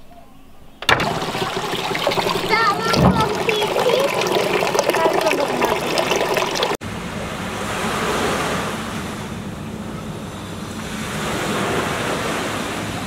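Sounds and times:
fountain water splashing: 0:00.8 - 0:06.8.

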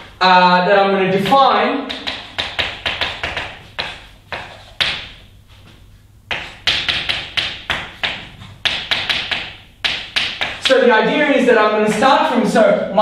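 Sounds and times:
chalk tapping on blackboard: 0:01.2 - 0:05.2, 0:06.3 - 0:10.7.

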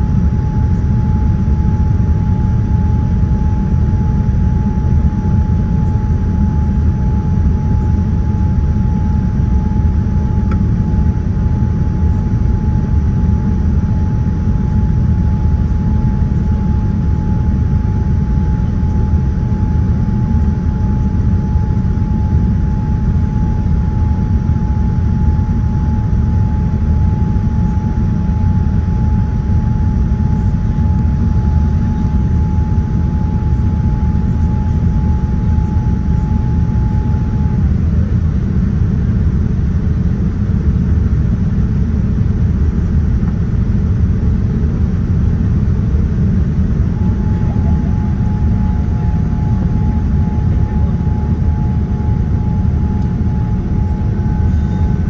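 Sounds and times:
airliner engine rumble: 0:00.0 - 0:55.0
thin steady whine: 0:00.0 - 0:55.0.

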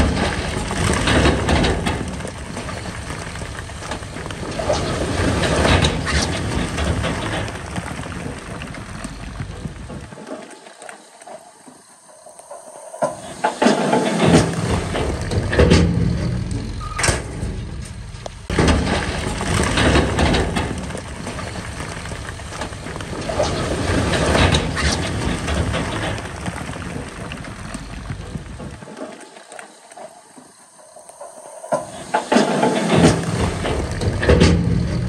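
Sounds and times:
diesel engine running: 0:00.0 - 0:10.1, 0:14.2 - 0:28.8, 0:33.0 - 0:35.0
rumbling and clattering: 0:00.0 - 0:10.2, 0:13.0 - 0:29.0, 0:31.8 - 0:35.0.

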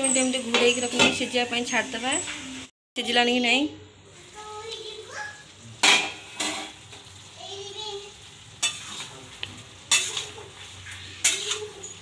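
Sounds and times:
metal spoon clanking on pan: 0:00.0 - 0:01.3, 0:05.8 - 0:07.1, 0:08.6 - 0:12.0
faint sizzle: 0:00.0 - 0:12.0.

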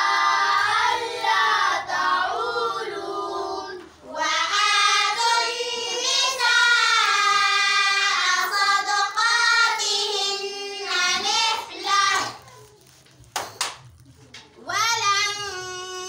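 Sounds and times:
girls chanting in unison: 0:00.0 - 0:12.3.

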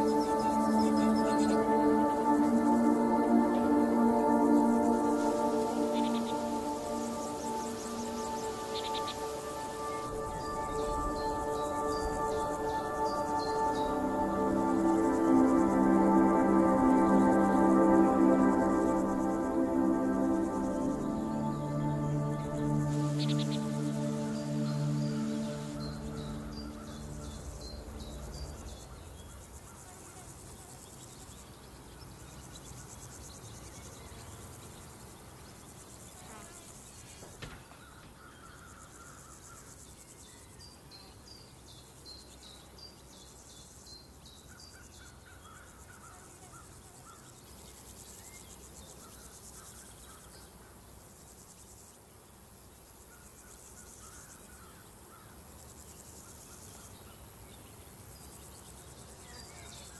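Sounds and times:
insects hissing: 0:00.0 - 0:29.9.

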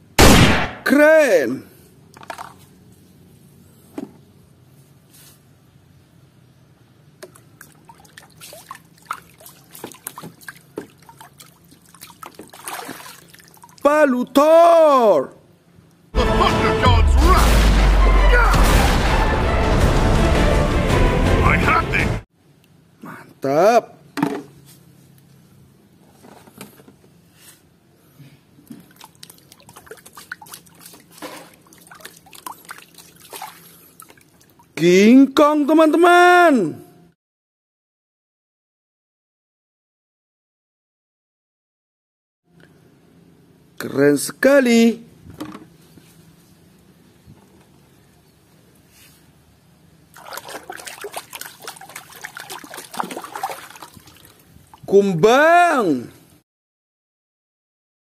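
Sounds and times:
small splashes and drips: 0:07.2 - 0:13.8, 0:28.6 - 0:34.8, 0:50.1 - 0:54.9
muddy water sloshing: 0:07.2 - 0:13.9, 0:28.6 - 0:34.8, 0:50.1 - 0:54.9.

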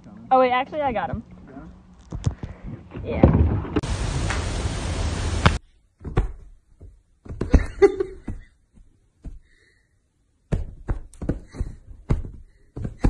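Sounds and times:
steady rushing noise: 0:03.8 - 0:05.6.

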